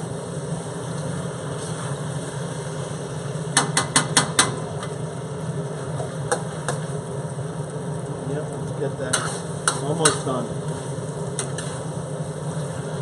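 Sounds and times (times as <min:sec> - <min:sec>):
steady low hum: 0:00.0 - 0:13.0
metal spatula clanking on wok: 0:09.1 - 0:10.3.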